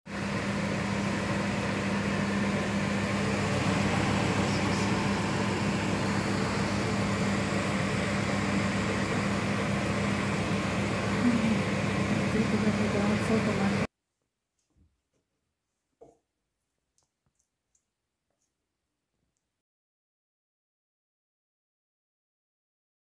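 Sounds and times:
fan humming: 0:00.1 - 0:13.9.

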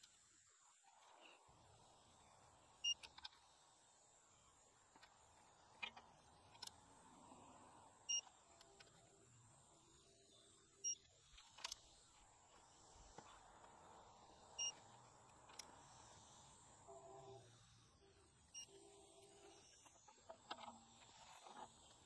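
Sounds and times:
short electronic beeps: 0:18.5 - 0:18.8.

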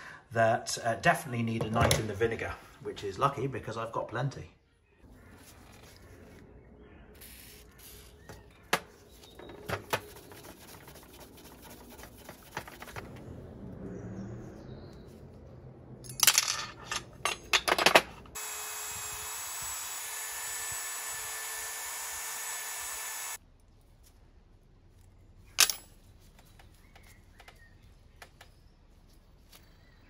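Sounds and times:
rotary tool whining: 0:18.4 - 0:23.4
clicks and knocks of tools handled: 0:25.6 - 0:27.6.

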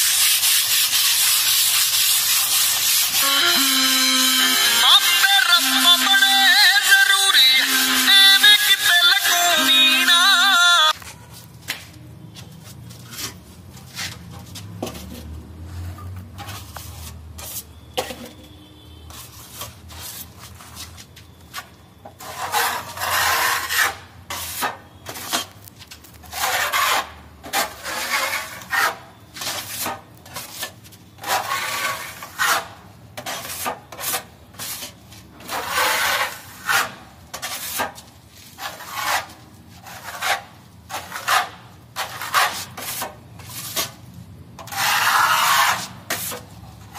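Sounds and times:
putty knife scraping wall: 0:00.0 - 0:04.8, 0:22.1 - 0:25.5, 0:26.2 - 0:44.0, 0:44.6 - 0:46.9.

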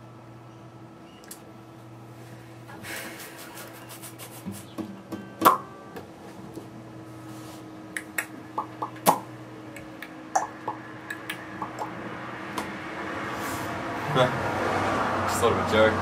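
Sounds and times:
steady low hum: 0:00.0 - 0:14.6
guitar notes plucked: 0:05.0 - 0:06.2.

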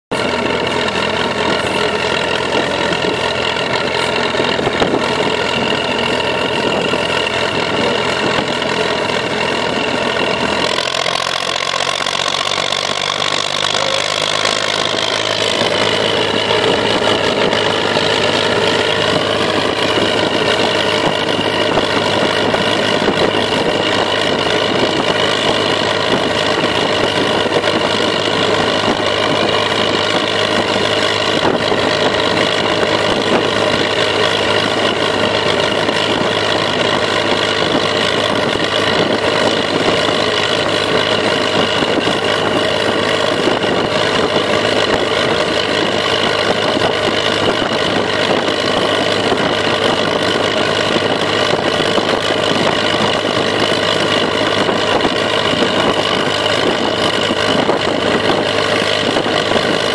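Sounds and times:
tractor diesel engine running: 0:00.0 - 0:59.9.

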